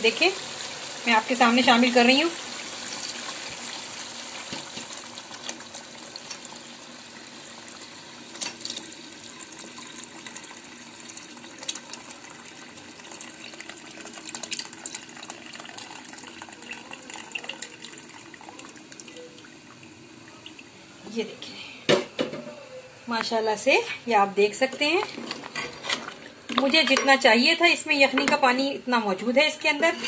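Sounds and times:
gravy bubbling and sizzling: 0.0s - 28.3s
broth pouring: 7.6s - 21.0s.

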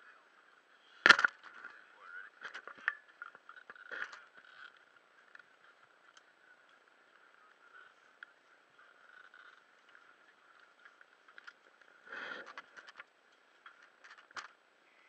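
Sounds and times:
scuba gear clicks and knocks: 12.4s - 14.6s.

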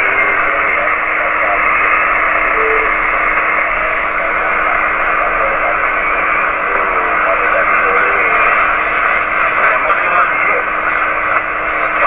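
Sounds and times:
brief tone: 0.0s - 1.4s, 2.4s - 4.8s
faint garbled voices: 0.0s - 12.0s
radio band noise hiss: 0.0s - 12.0s.

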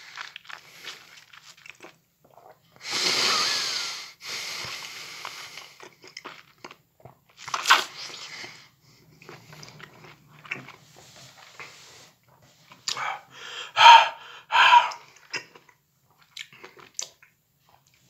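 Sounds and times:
wet chewing and squelching: 0.0s - 2.7s, 4.7s - 10.9s, 14.8s - 18.0s
loud noisy breaths: 2.8s - 5.6s, 13.1s - 15.0s.

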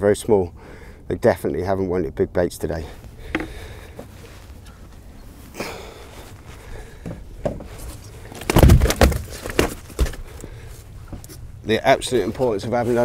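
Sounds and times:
fish thumping in a boat: 3.2s - 3.8s, 7.0s - 10.3s.

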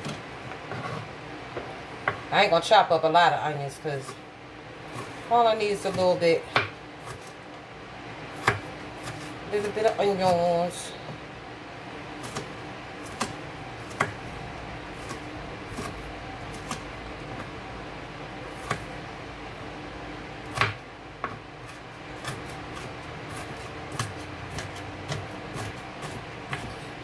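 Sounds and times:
knife chopping on cutting board: 5.8s - 7.4s, 8.4s - 10.4s, 12.2s - 14.2s, 15.0s - 17.5s, 18.5s - 19.0s, 20.5s - 27.0s.

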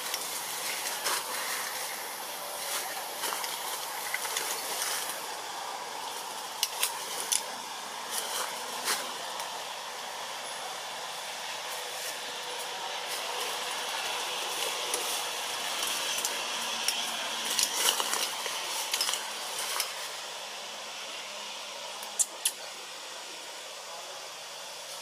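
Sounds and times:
crackling rustling clicks: 0.0s - 5.2s, 14.4s - 20.0s
steady outdoor hiss: 0.0s - 25.0s.

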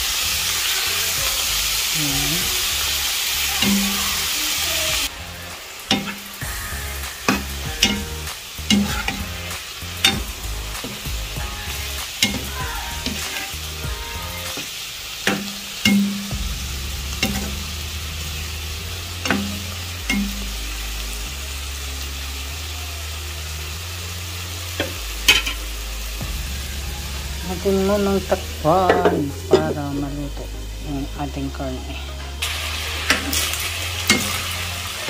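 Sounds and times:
meat sizzling in a wok: 0.0s - 35.0s.

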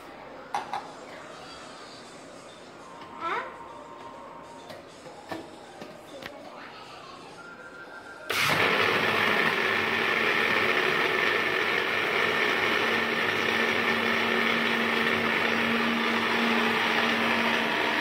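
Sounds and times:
blender motor humming: 8.3s - 18.0s.

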